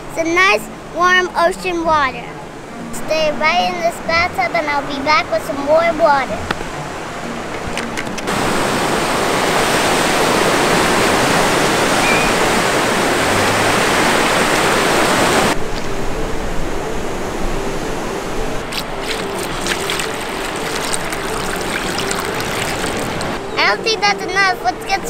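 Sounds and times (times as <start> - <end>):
ocean surf rushing: 0.0 - 25.0
water poured into plastic tub: 18.7 - 23.4.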